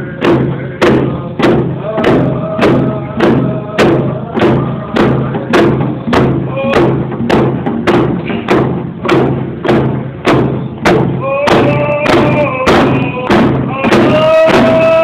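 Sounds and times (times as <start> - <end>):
voices singing: 0.0 - 7.1, 11.1 - 15.0
hand drums beating: 0.0 - 15.0.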